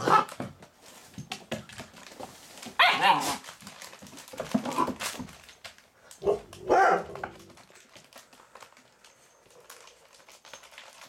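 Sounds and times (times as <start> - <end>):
puppy barking: 0.0 - 0.3, 2.8 - 3.4, 6.2 - 7.2.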